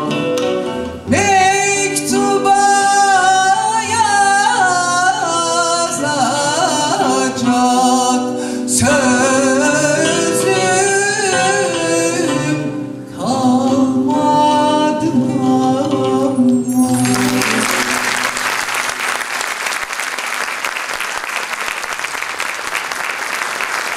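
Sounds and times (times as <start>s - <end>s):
folk song singing and instruments: 0.0s - 18.9s
audience applause: 17.0s - 23.9s.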